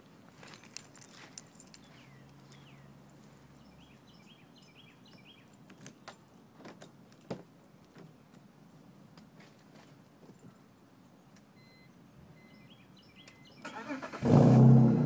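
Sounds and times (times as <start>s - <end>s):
bird chirps: 1.8s - 5.8s, 11.6s - 13.7s.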